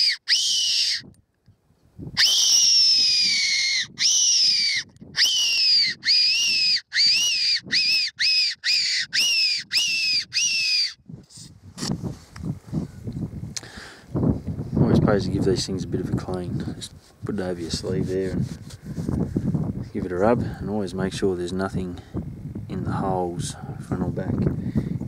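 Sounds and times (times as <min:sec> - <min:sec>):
whistle imitating rabbit squeals: 0:00.0 - 0:01.1, 0:02.2 - 0:11.0.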